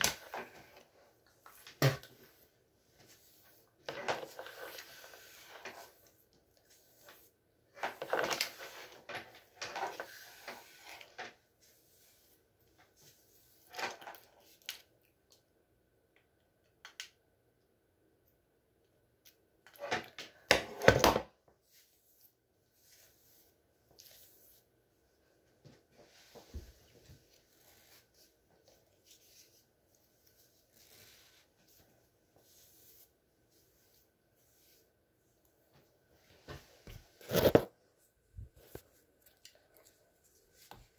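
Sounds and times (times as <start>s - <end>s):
flat iron swishing through hair: 0.0s - 12.4s.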